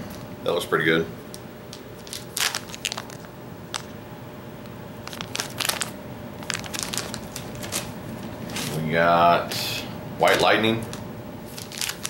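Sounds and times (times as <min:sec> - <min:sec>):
plastic package crinkling: 0:01.7 - 0:04.0, 0:05.0 - 0:08.8, 0:10.3 - 0:12.0.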